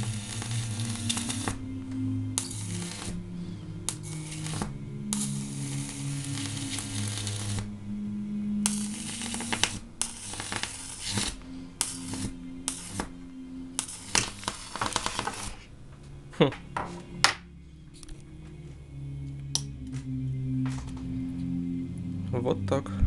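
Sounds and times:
sharp electric snaps: 0.0s - 3.2s, 3.8s - 7.8s, 8.5s - 15.7s, 17.9s - 18.3s, 19.4s - 20.1s
electric arc hissing and crackling: 0.0s - 7.8s, 8.5s - 15.7s
low steady hum: 0.0s - 14.6s, 15.4s - 23.0s.

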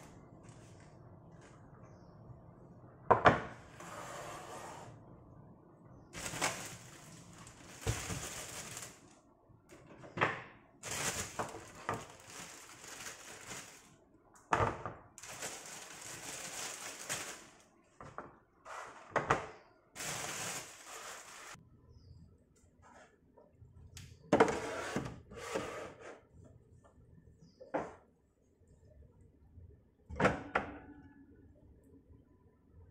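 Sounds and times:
plastic bag crinkling: 6.2s - 9.2s, 10.8s - 14.0s, 15.2s - 17.7s, 20.0s - 21.6s.

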